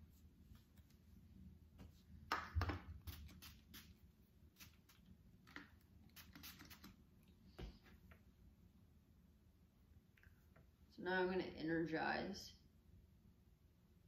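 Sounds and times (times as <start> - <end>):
spray bottle spritzing: 3.0 - 4.0, 4.6 - 7.0.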